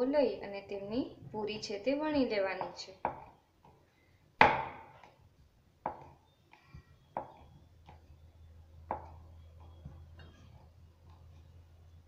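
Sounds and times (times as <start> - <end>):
rolling pin knocking on wood: 8.9 - 9.2.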